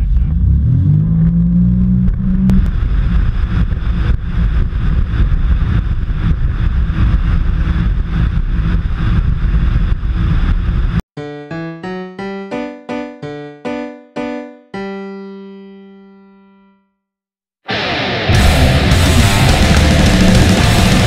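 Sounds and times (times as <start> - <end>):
wind buffeting camera: 2.0 - 11.0.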